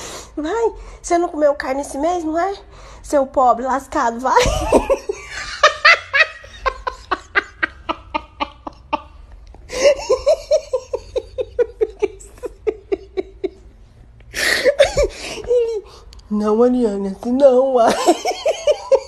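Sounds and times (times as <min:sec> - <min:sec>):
hearty laughter: 0:04.4 - 0:15.7, 0:17.9 - 0:19.0.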